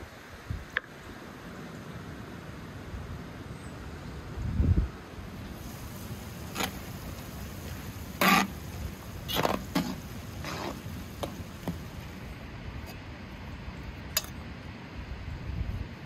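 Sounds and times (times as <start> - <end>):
steady background hiss: 0.0 - 16.0
metal ladle scraping a pot: 8.2 - 8.6, 9.3 - 10.9.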